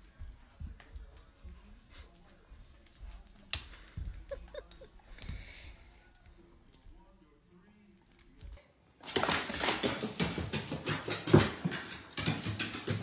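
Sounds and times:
dog collar tags jingling: 0.0 - 8.6.

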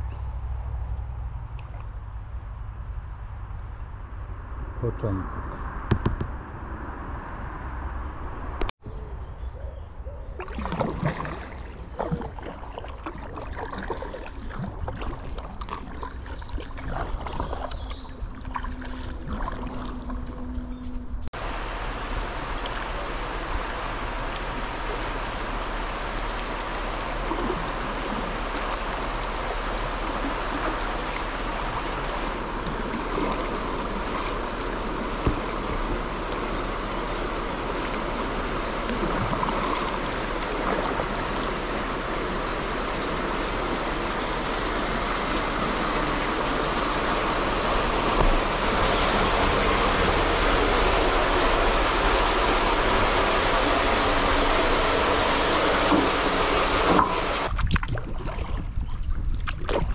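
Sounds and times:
river water rushing: 10.4 - 16.0, 21.4 - 57.5.

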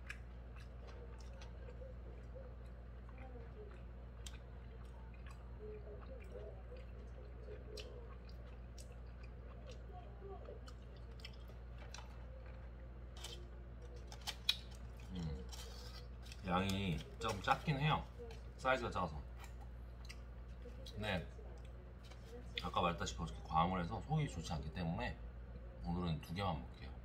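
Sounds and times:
person chewing: 0.0 - 18.5, 19.3 - 21.0
steady low hum: 0.0 - 27.0.

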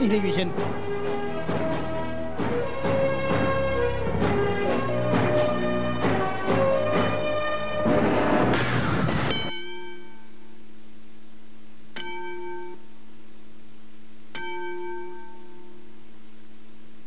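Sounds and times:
bell-like chime: 9.3 - 10.4.

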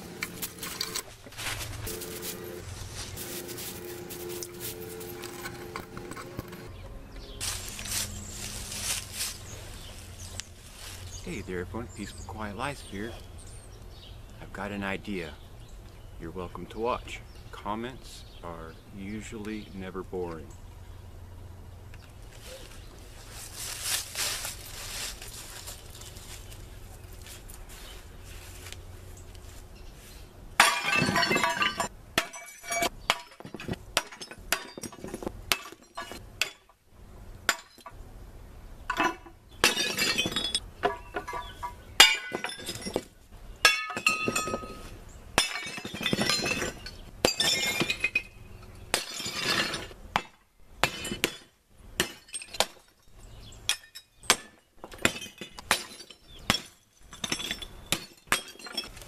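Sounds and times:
sledgehammer smashing porcelain toilet: 30.6 - 36.6
shattering porcelain clatter: 30.6 - 36.7, 37.5 - 37.9, 38.9 - 44.8, 45.4 - 53.1, 53.7 - 59.0.

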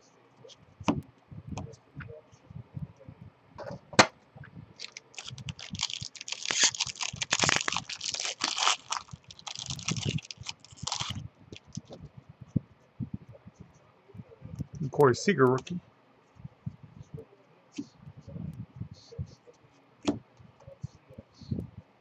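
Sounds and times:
foil wrapper crackling: 4.8 - 11.9.

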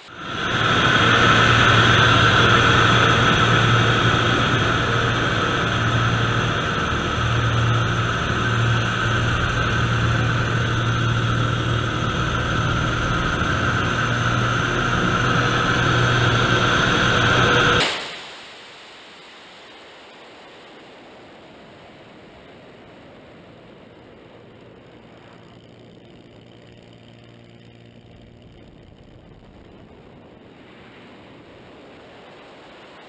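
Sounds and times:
airflow noise: 0.0 - 17.8
propeller plane engine running: 0.0 - 17.9, 21.1 - 33.0.

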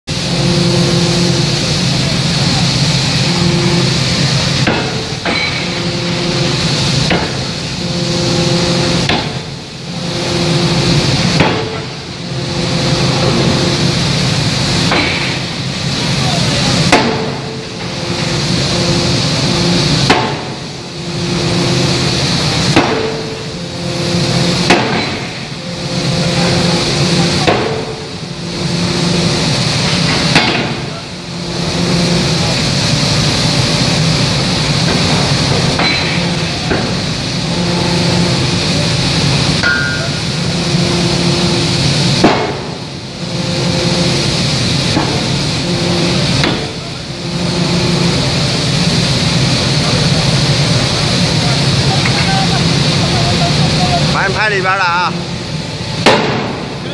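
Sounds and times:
steady pitched hum: 0.0 - 56.9
forging hammer pounding: 4.6 - 5.7, 7.0 - 7.5, 11.4 - 11.9, 16.9 - 17.4, 20.0 - 20.5, 22.7 - 23.4, 24.6 - 25.3, 27.2 - 28.0, 30.1 - 30.8, 42.2 - 42.8, 46.4 - 46.7.

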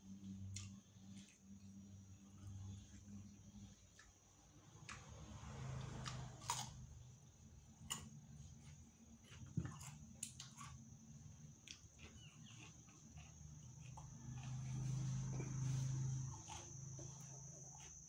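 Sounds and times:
man chewing: 6.0 - 6.7, 7.9 - 18.0
biting cucumber crunches: 6.0 - 6.8, 9.2 - 14.8.

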